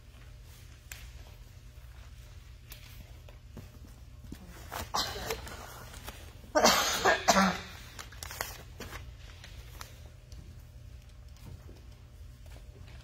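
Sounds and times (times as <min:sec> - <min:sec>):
person coughing: 0:04.8 - 0:05.7, 0:06.5 - 0:07.9.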